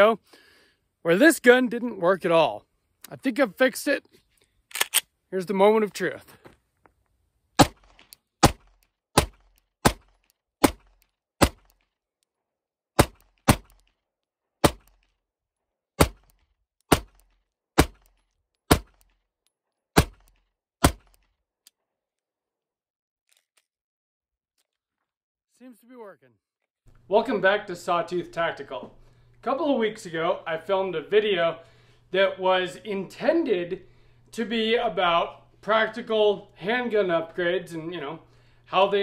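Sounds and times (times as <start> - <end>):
pistol shots: 7.6 - 11.7.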